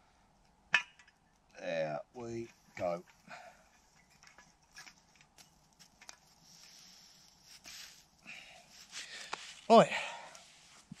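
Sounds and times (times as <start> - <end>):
soft hiss: 0.0 - 11.0.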